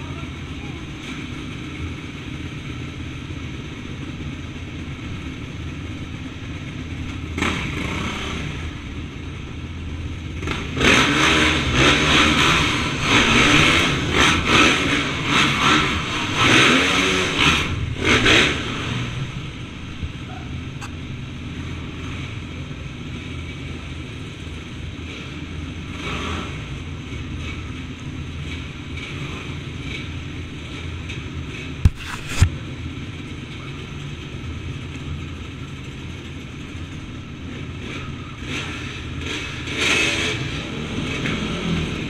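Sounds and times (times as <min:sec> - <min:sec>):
dirt bike engines revving: 0:00.0 - 0:42.0.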